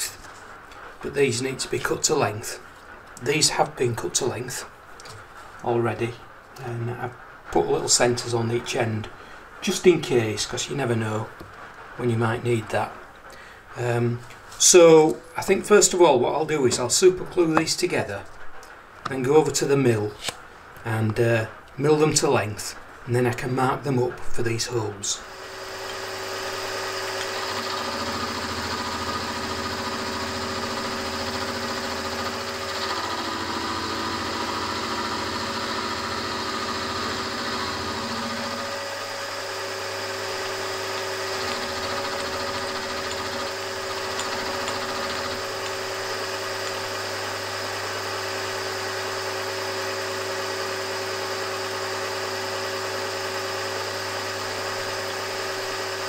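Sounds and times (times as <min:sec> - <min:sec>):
milling machine cutting steel: 0:25.2 - 0:56.0.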